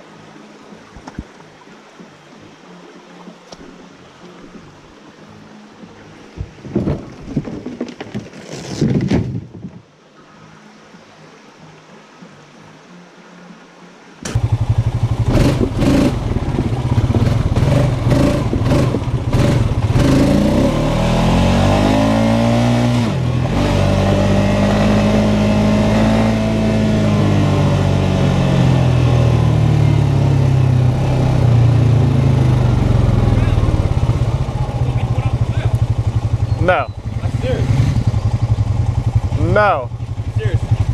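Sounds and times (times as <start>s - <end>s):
atv engine running: 14.2s - 40.9s.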